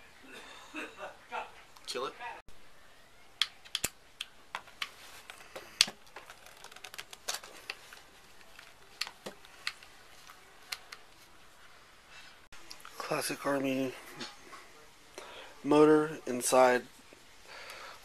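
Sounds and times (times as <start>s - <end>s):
sharp plastic clicks and taps: 3.4s - 4.9s.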